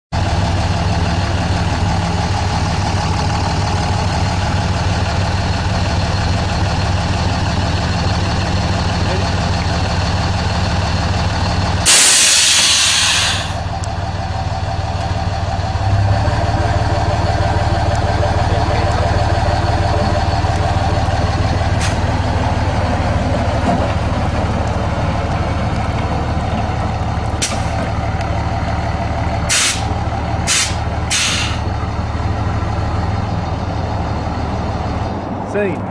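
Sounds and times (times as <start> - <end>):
truck engine idling: 0.1 - 35.9
air suspension hiss: 11.8 - 13.6, 29.5 - 29.9, 30.5 - 31.6
short valve hisses: 11.9 - 13.6, 29.5 - 29.8, 30.5 - 31.6.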